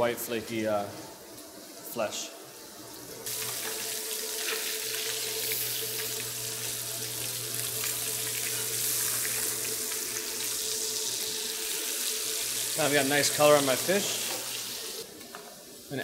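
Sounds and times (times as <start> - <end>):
fish sizzling in a frying pan: 3.2 - 15.1.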